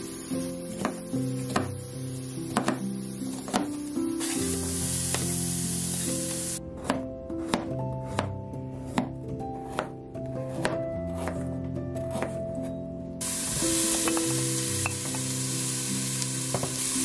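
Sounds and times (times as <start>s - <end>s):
background music: 0.0s - 17.0s
knife chopping on plastic board: 0.8s - 1.8s, 2.5s - 2.8s, 3.4s - 3.8s, 6.8s - 12.4s
hiss: 4.2s - 6.6s, 13.2s - 17.0s.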